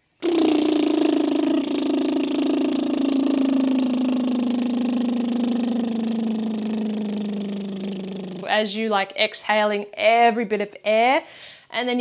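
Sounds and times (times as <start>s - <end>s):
woman's voiced lip trill: 0.2s - 8.6s.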